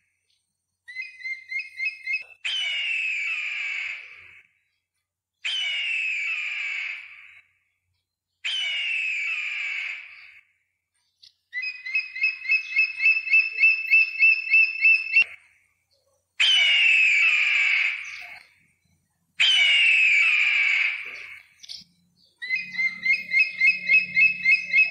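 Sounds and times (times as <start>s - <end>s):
bird of prey screaming: 1.0s - 4.5s, 5.4s - 7.6s, 8.4s - 10.5s, 16.4s - 18.6s, 19.4s - 21.6s, 22.4s - 24.9s.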